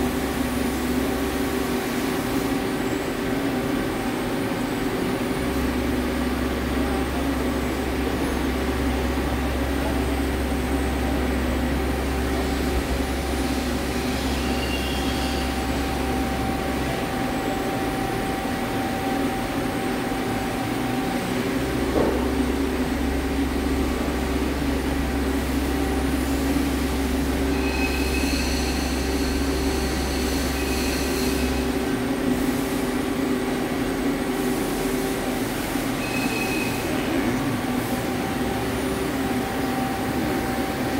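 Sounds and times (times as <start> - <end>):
machine mechanical hum: 0.0 - 40.9
machine whining tones: 11.7 - 21.5, 27.2 - 31.8.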